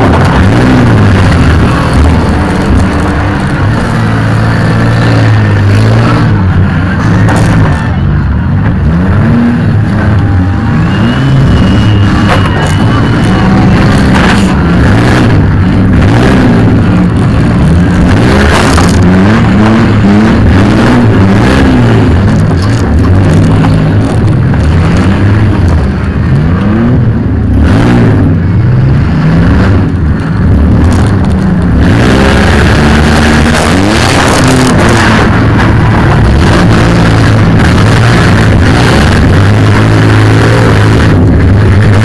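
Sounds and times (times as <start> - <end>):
van engine revving: 0.0 - 42.0.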